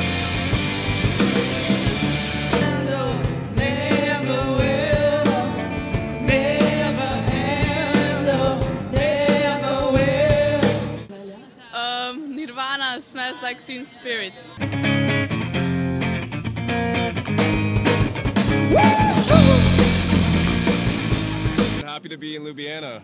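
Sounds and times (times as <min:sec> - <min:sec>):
live rock band playing: 0:00.0 - 0:11.1, 0:14.6 - 0:21.8
person singing: 0:01.9 - 0:11.0, 0:18.7 - 0:20.0.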